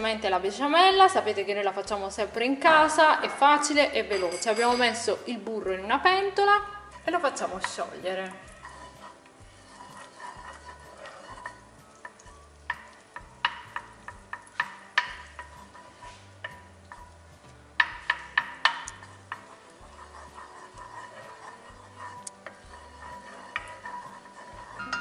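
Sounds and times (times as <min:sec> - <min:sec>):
butter sizzling faintly: 0:00.0 - 0:25.0
wooden spoon stirring: 0:00.0 - 0:25.0
spoon tapping pot: 0:07.2 - 0:09.0, 0:09.9 - 0:25.0.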